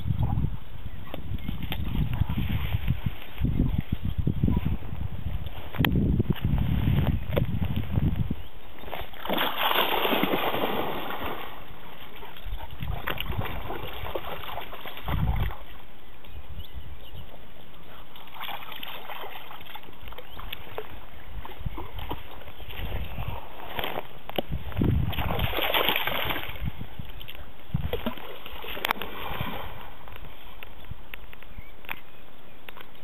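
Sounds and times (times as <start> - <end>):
dog splashing through water: 8.9 - 15.7, 17.9 - 24.1, 25.0 - 26.7.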